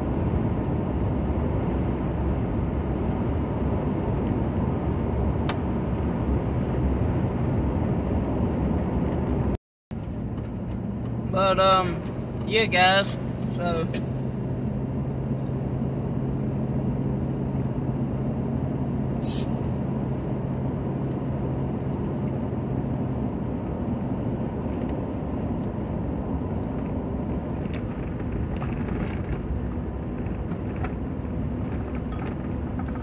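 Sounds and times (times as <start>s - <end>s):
low engine hum: 0.0s - 33.0s
truck engine and road noise: 0.0s - 33.0s
brief sharp high sound: 19.2s - 19.6s.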